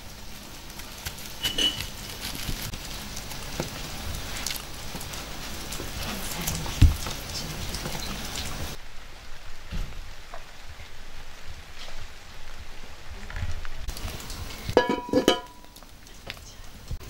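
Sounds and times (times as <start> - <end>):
hot oil sizzling: 0.0 - 8.8, 13.9 - 17.0.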